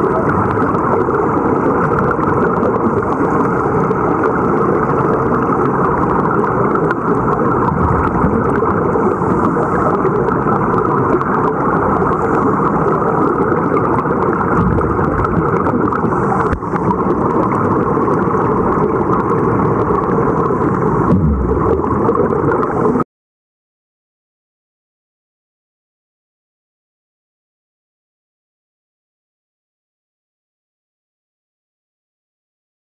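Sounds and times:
underwater rushing and bubbling: 0.0 - 23.0.

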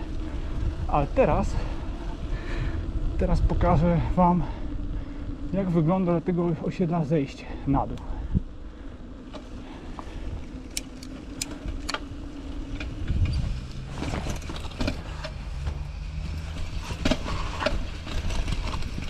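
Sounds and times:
bike tyre noise: 0.0 - 19.0
low hum: 0.0 - 19.0
bike clicks and rattles: 9.2 - 19.0.

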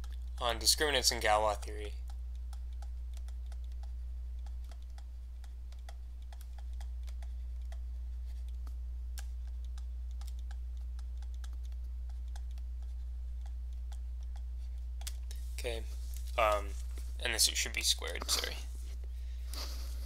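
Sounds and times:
steady low hum: 0.0 - 20.0
stylus tapping on tablet screen: 2.0 - 15.4.

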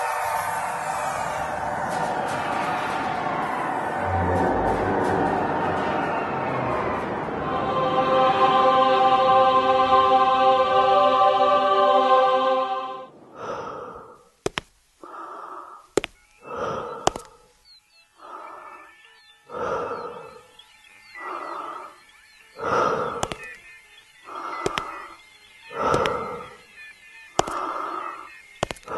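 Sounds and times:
held music chord: 3.9 - 13.1
heavy breathing through respirator: 13.1 - 28.9
sharp clicks: 14.4 - 18.4, 22.5 - 28.9.

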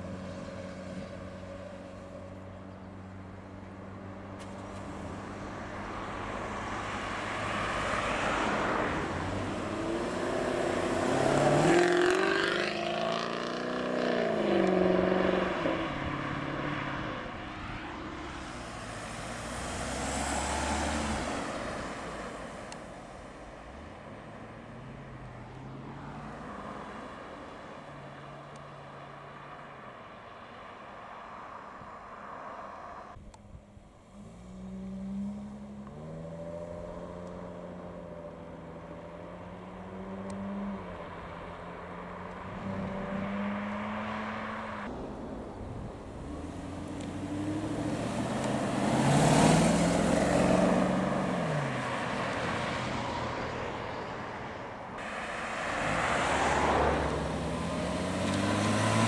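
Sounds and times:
car passing close: 3.9 - 33.2, 34.1 - 59.0
cars accelerating away: 4.4 - 22.9, 34.1 - 44.9, 46.2 - 54.1, 55.0 - 59.0.

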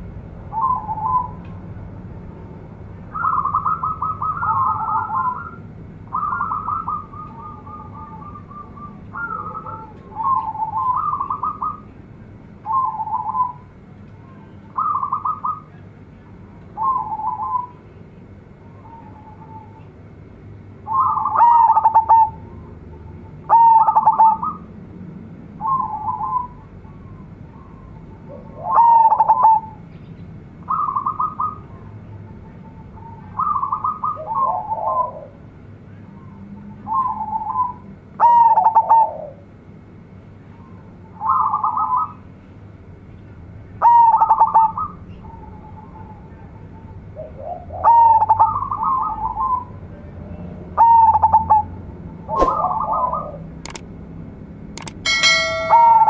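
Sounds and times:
dove cooing: 3.2 - 11.8, 20.9 - 22.4, 23.5 - 24.6, 27.6 - 29.8, 33.4 - 35.4, 47.2 - 49.7, 50.8 - 51.7, 52.3 - 53.4.

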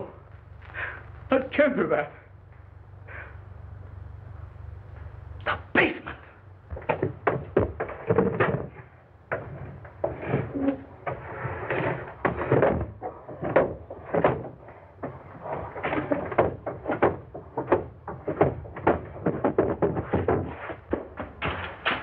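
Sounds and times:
heavy footsteps on wooden stairs: 6.7 - 22.0.

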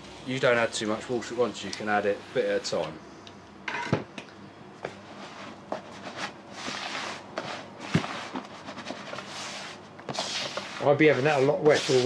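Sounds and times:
hands rubbing damp bait in bucket: 10.2 - 12.0.

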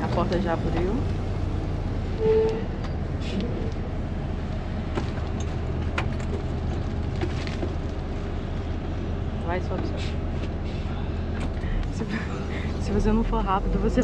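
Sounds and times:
bus engine idling: 0.0 - 14.0.

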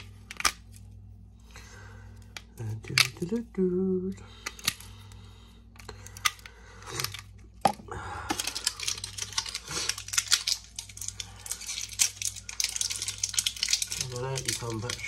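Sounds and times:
batteries clicking and rattling: 5.8 - 15.0.

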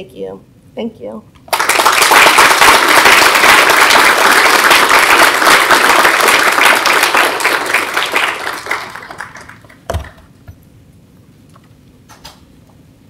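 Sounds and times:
audience applauding: 1.5 - 10.2.

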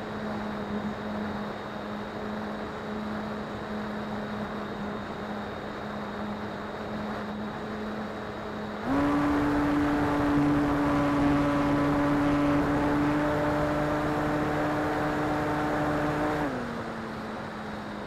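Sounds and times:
electric motor and propeller hum: 0.0 - 18.0.

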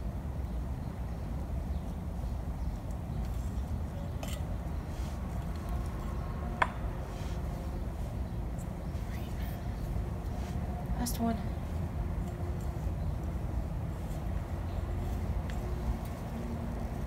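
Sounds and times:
metal trowel clinking on pot: 4.1 - 4.6.

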